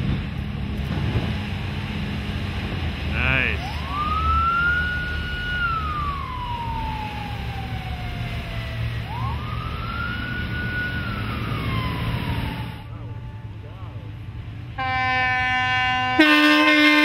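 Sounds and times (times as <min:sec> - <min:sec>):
siren wailing: 0:03.1 - 0:12.9.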